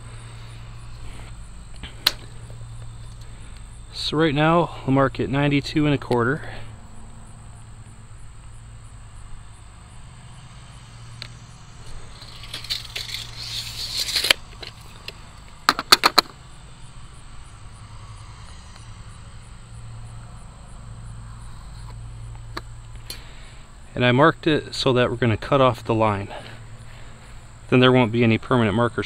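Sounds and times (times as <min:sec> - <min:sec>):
crickets chirping: 0:00.0 - 0:29.0
scratchy rubbing of hand tool: 0:11.8 - 0:15.2.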